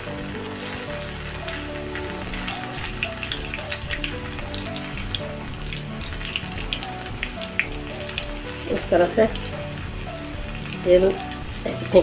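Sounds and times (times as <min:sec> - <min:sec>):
background music: 0:00.0 - 0:12.0
oil sizzling and crackling: 0:00.0 - 0:12.0.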